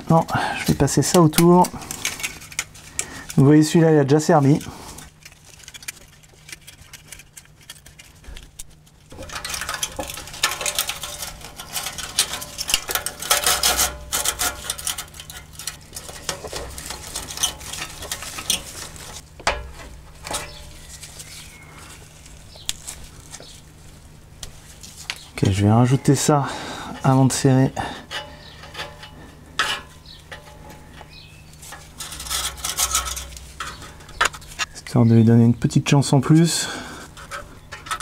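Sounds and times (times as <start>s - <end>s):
sheet metal crinkling and clinking: 0.0s - 21.4s, 27.0s - 34.8s, 37.1s - 38.0s
steady low hum: 0.0s - 38.0s.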